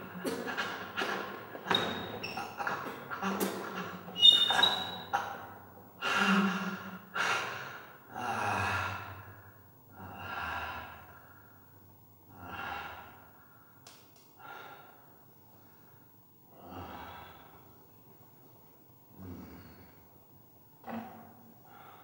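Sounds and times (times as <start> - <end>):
man breathing heavily: 0.0 - 4.6, 6.0 - 11.7, 14.4 - 17.8, 21.6 - 22.0.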